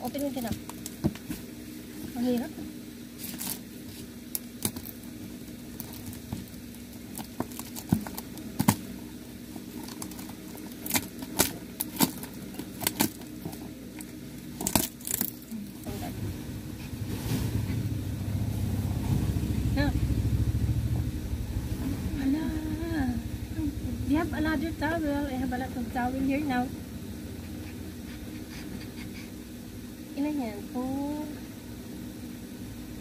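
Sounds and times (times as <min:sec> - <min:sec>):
steady low hum: 0:00.0 - 0:33.0
plastic wrapping crinkling and tearing: 0:03.2 - 0:05.0, 0:05.6 - 0:09.0, 0:09.6 - 0:13.7
low rumble: 0:15.5 - 0:29.8.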